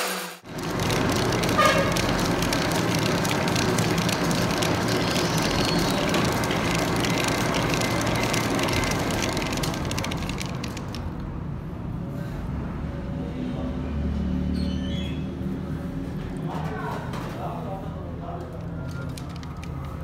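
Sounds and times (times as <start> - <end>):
metal lathe running: 0.0 - 11.0
crackle of fine ticks: 0.5 - 11.1.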